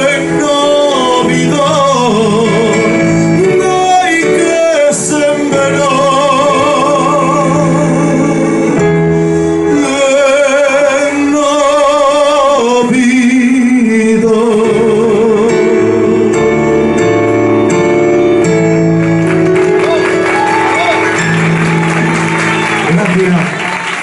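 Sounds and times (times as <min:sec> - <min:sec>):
man singing into a microphone: 0:00.0 - 0:16.9
electronic keyboard chords: 0:14.5 - 0:23.8.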